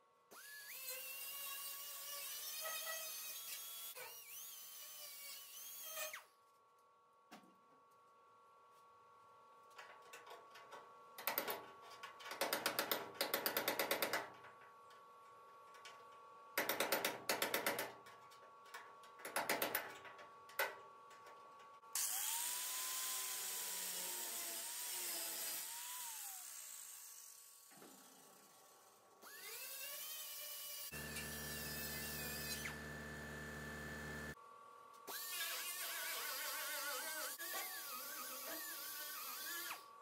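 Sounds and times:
high-speed power tool running: 0:22.0 - 0:27.3, 0:29.2 - 0:34.4.

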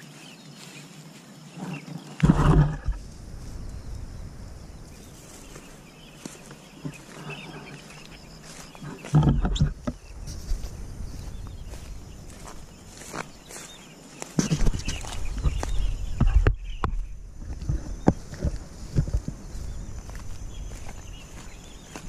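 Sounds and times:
low rumbling bursts on microphone: 0:02.2 - 0:06.1.

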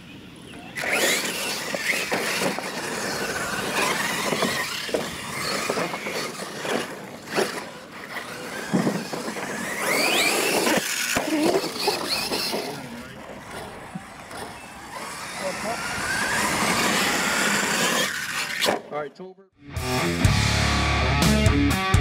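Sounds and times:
tyres scrabbling on dirt: 0:00.5 - 0:18.9
trucks landing with knocks: 0:00.8 - 0:15.2
electric motor whine: 0:00.8 - 0:18.6.

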